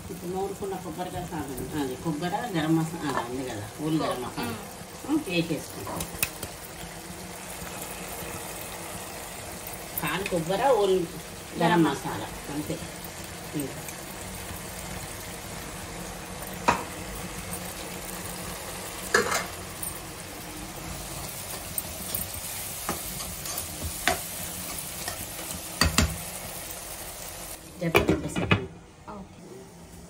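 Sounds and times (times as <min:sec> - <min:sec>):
curry simmering and sizzling in pan: 0:00.0 - 0:27.8
spatula stirring: 0:21.3 - 0:26.4.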